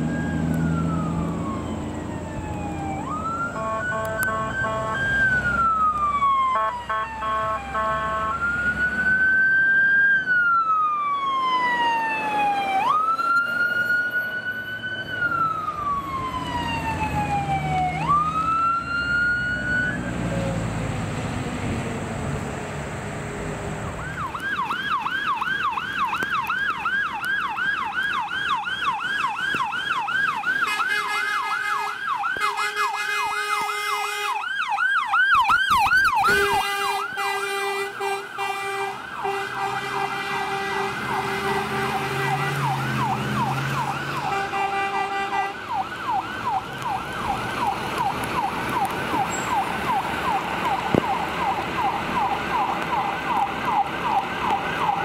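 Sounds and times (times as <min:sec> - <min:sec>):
siren yelping: 0:00.0 - 0:20.1, 0:24.0 - 0:55.0
siren wailing: 0:00.0 - 0:20.6, 0:23.9 - 0:55.0
horn blasts: 0:03.6 - 0:05.1, 0:06.6 - 0:08.4, 0:30.6 - 0:34.4, 0:36.2 - 0:42.8, 0:44.2 - 0:45.6.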